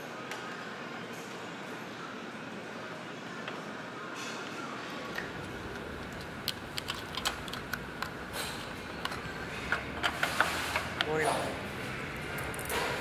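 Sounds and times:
workshop hum: 0.0s - 13.0s
plastic and metal parts clicking: 5.1s - 11.1s.

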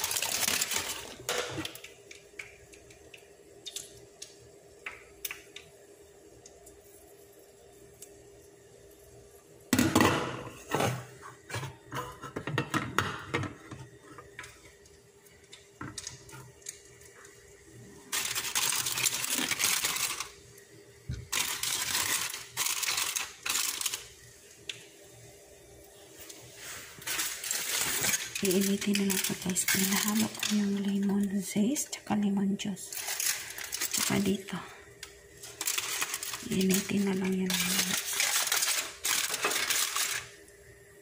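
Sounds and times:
plastic wrap crinkling: 0.0s - 1.9s, 18.0s - 20.4s, 21.2s - 24.8s, 26.2s - 31.8s, 32.8s - 40.4s
faint steady hum: 0.0s - 41.0s.

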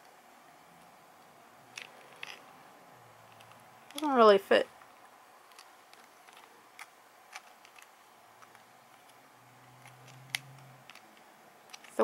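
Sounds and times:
faint low hum: 0.0s - 12.0s
plastic toy parts clicking: 1.7s - 2.4s, 3.3s - 4.2s, 5.5s - 9.2s, 9.8s - 12.0s.

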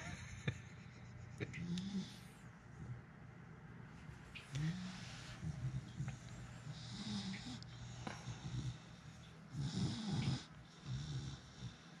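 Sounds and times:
dog grunting groans: 9.5s - 11.7s.

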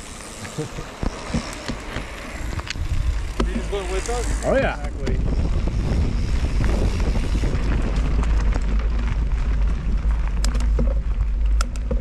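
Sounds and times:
wind buffeting microphone: 2.4s - 12.0s.

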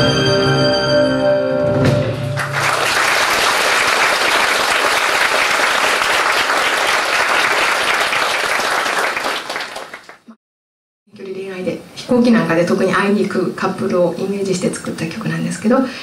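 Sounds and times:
audience applauding: 2.4s - 10.4s.

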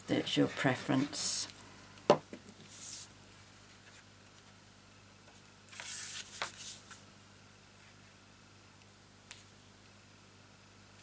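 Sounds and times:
cardstock sliding and rustling: 5.7s - 7.0s
paper rustling: 5.7s - 7.0s.

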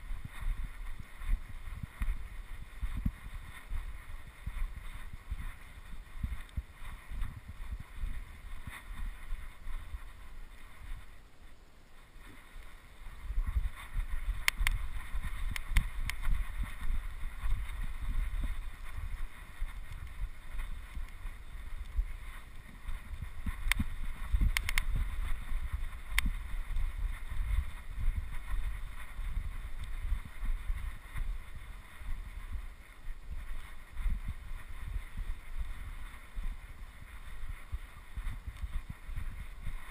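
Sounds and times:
wind buffeting microphone: 0.0s - 11.4s, 12.0s - 39.9s
sharp clicks: 14.4s - 16.3s, 23.6s - 25.1s, 26.1s - 26.4s.

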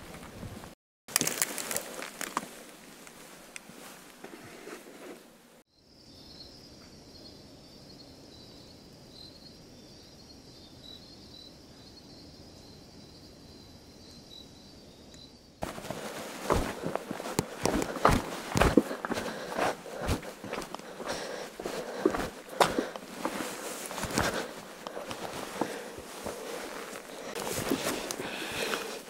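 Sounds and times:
footsteps crunching on rocky ground: 1.1s - 3.2s, 15.6s - 29.0s.

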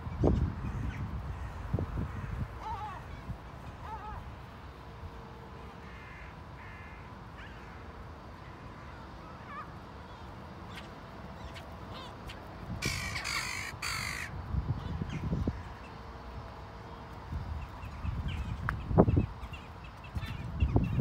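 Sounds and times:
gulls and crows calling: 0.1s - 21.0s
harsh bird call: 8.5s - 14.3s.

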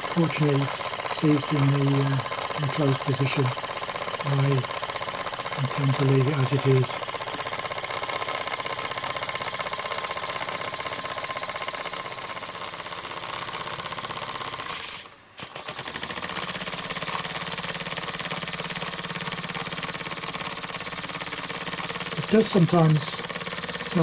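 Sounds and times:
toy steam engine beating: 0.0s - 24.0s
steam hiss: 14.6s - 15.9s.

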